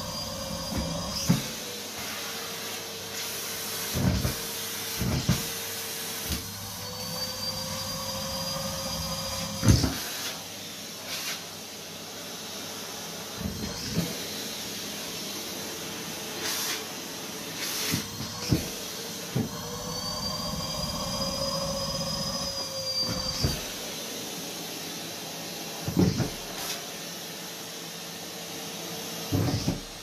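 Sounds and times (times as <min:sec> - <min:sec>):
vacuum cleaner running: 0:00.0 - 0:30.0
high whistling tone: 0:19.7 - 0:23.7.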